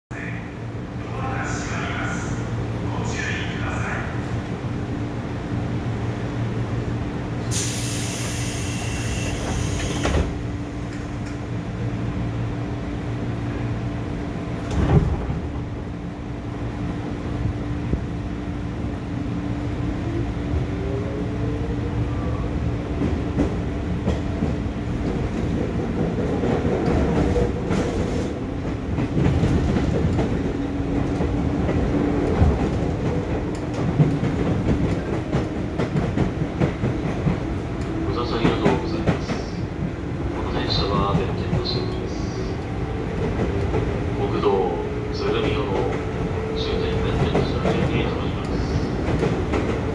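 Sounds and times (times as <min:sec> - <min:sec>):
train doors shutting: 0:07.4 - 0:11.5, 0:14.6 - 0:15.6.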